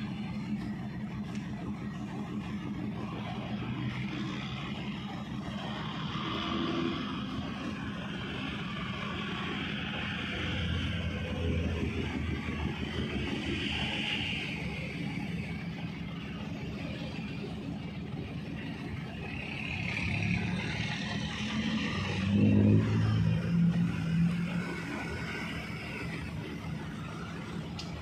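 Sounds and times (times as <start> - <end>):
ship diesel engines running: 0.0 - 28.0.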